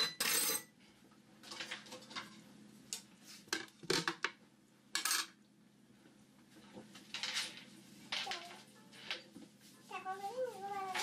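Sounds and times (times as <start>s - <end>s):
dishes and utensils clinking: 0.0s - 0.8s.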